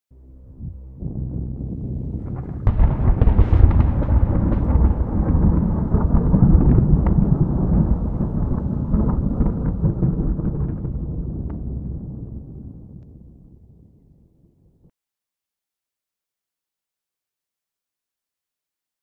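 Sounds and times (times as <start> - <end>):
thunder crack and rumble: 0.6 - 14.0.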